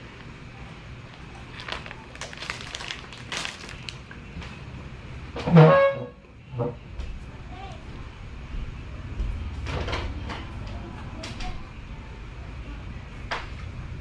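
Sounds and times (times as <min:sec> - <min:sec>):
snack wrapper crinkling: 0:01.1 - 0:04.2.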